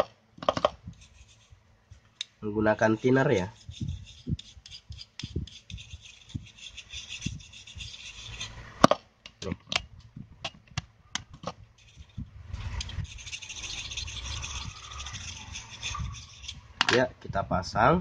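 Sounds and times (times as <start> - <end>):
brush scrubbing circuit board: 0.8 - 1.6, 3.0 - 8.8, 11.7 - 16.8.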